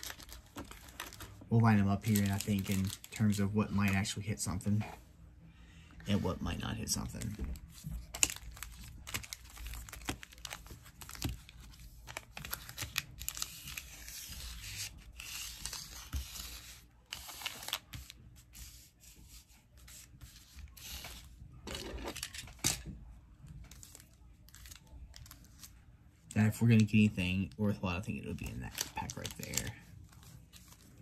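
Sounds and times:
foil wrappers crinkling: 0.0 - 4.1, 6.8 - 18.0, 28.3 - 31.0.

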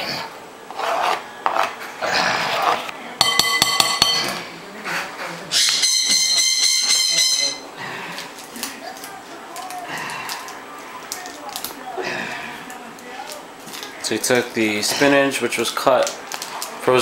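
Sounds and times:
knife scraping cutting board: 0.1 - 2.9
knife tapping glass bowl: 3.2 - 4.3.

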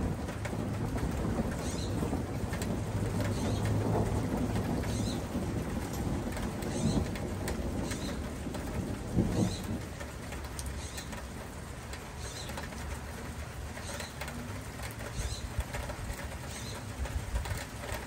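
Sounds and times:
birds chirping: 1.6 - 2.0, 3.2 - 3.8, 4.8 - 5.3, 6.6 - 8.3, 9.2 - 9.8, 10.6 - 11.3, 12.2 - 12.6, 13.8 - 14.4, 15.1 - 15.5, 16.4 - 16.9.

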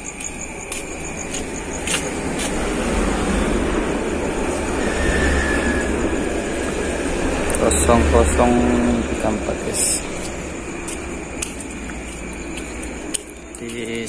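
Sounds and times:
passing motor vehicle rumble: 2.1 - 13.1.

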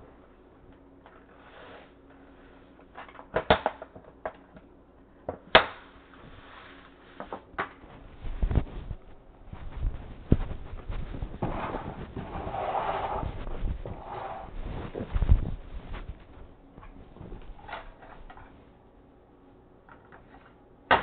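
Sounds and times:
low rumble: 8.1 - 18.5.

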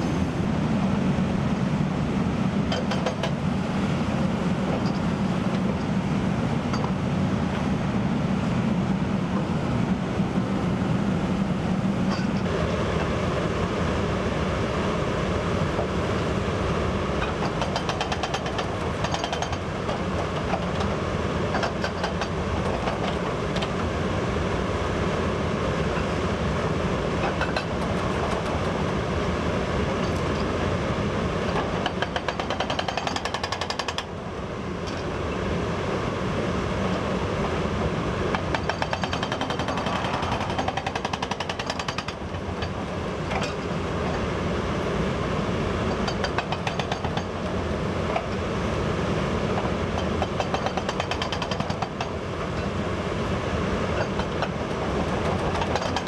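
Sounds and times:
hydraulic hammer pounding rock: 2.7 - 3.4, 17.2 - 23.8, 31.5 - 34.2, 38.3 - 43.7, 45.9 - 47.4, 49.5 - 52.7, 54.0 - 56.0.

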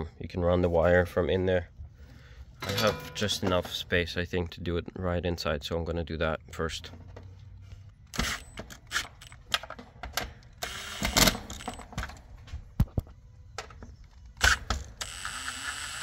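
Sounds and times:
cordless drill driving screws: 10.6 - 11.8, 14.4 - 16.0.

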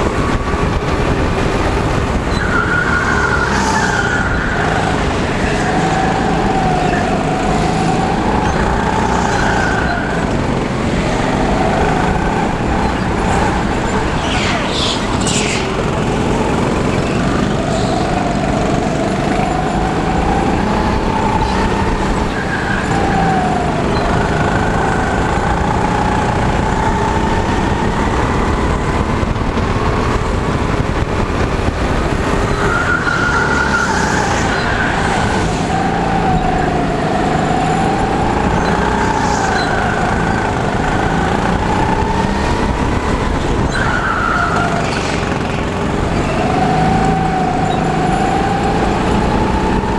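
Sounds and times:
go-kart engine running: 0.0 - 49.9.

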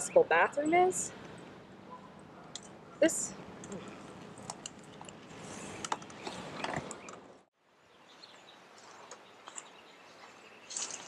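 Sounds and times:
wheelchair rolling over asphalt: 3.5 - 7.3.

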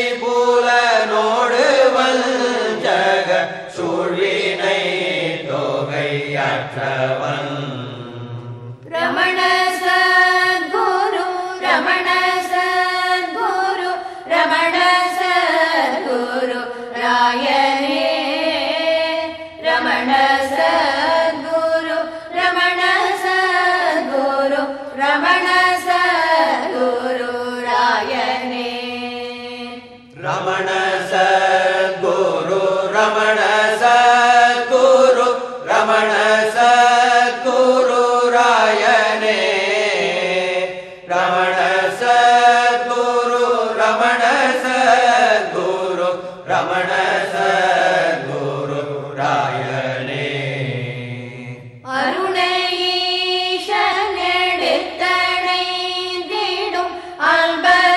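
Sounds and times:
person singing chant-like song: 0.0 - 57.9
singer breathing: 14.0 - 14.3, 40.7 - 41.1, 46.2 - 46.4, 56.9 - 57.2.

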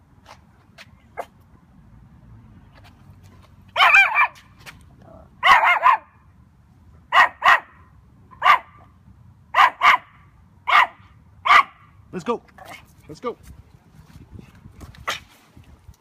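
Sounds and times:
puppy barking: 3.7 - 4.4, 5.4 - 6.1, 7.1 - 8.8, 9.5 - 11.8.

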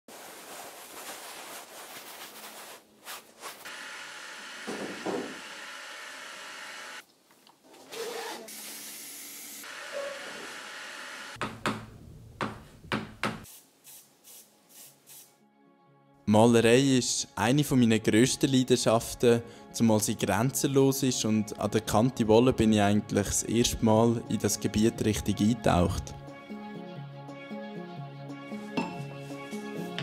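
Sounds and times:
thick paint smeared and mixed: 0.1 - 3.7.

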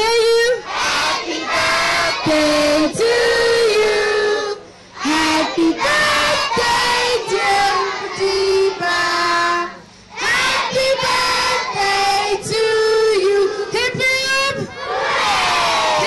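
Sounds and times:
children singing in unison: 0.6 - 13.3.

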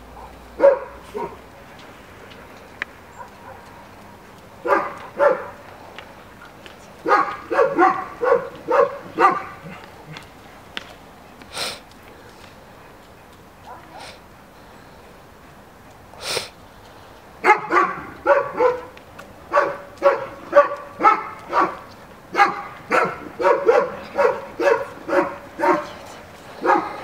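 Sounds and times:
dog barking: 0.2 - 1.4, 3.1 - 3.7, 4.6 - 5.6, 7.0 - 10.2, 13.6 - 14.2, 17.4 - 26.0, 26.6 - 27.0.

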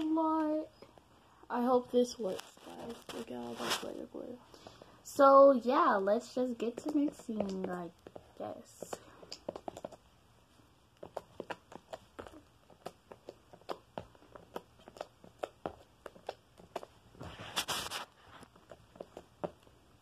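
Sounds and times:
brushing rustle: 1.9 - 4.2, 17.2 - 18.6.

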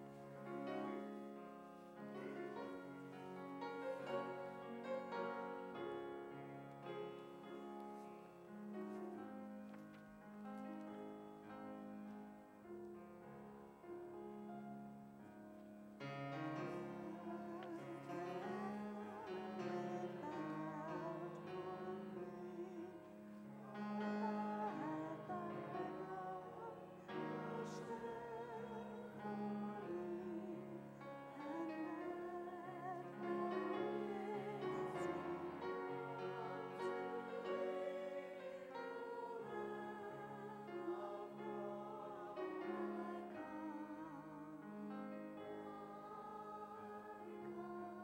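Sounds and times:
person singing with vibrato: 16.5 - 44.8.

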